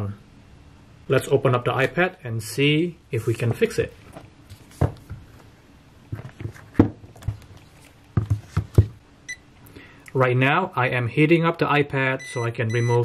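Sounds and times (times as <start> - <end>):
short beep: 12.2 - 13.0.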